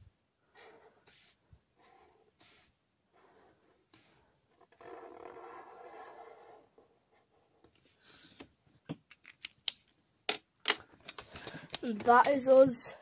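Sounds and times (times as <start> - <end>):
marker drawing on paper: 0.5 - 7.7.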